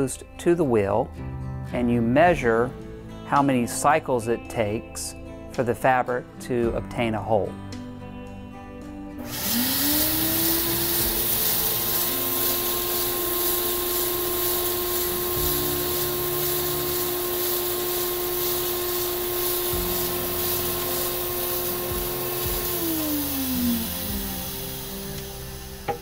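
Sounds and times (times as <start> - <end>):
machine motor humming: 9.2 - 26.0
steady hiss: 9.3 - 26.0.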